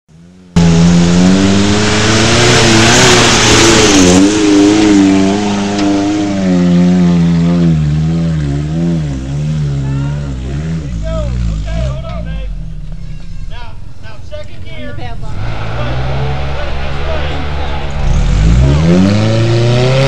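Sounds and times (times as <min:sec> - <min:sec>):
off-road vehicle engine revving: 0:00.1 - 0:13.4, 0:15.1 - 0:20.0
loud rushing noise: 0:15.0 - 0:20.0.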